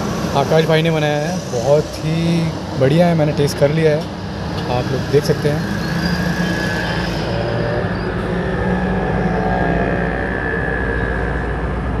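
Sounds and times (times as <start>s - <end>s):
faint high whine: 4.7s - 12.0s.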